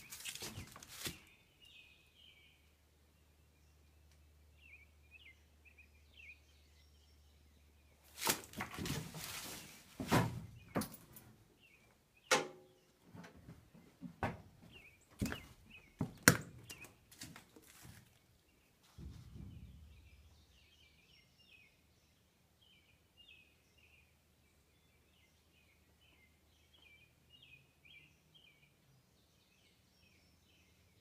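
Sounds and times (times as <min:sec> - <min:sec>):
sharp knocks and thuds: 0:08.2 - 0:11.2, 0:12.3 - 0:18.0, 0:18.9 - 0:20.4.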